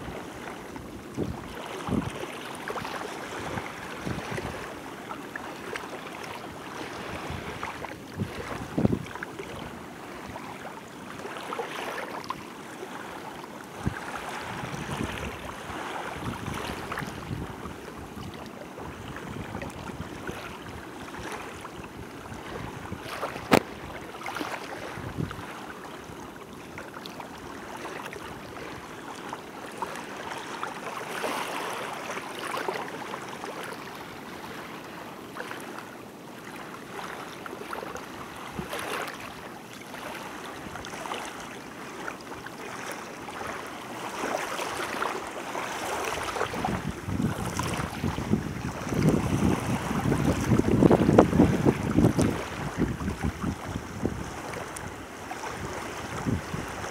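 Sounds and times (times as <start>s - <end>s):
small waves lapping: 0.0s - 56.9s.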